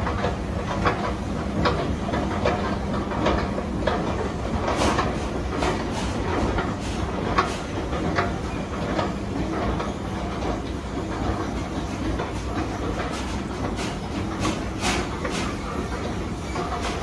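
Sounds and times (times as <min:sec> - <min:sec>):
escalator rumble and hum: 0:00.0 - 0:17.0.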